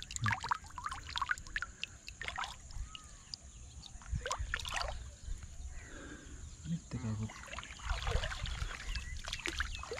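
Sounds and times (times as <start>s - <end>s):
water splashing and dripping: 0.0s - 5.1s, 7.1s - 9.9s.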